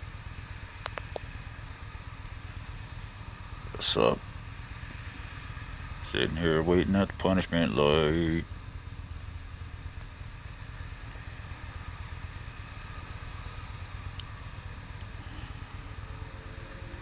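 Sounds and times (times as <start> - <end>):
cars passing: 0.0 - 17.0
motorcycle engine idling: 0.0 - 17.0.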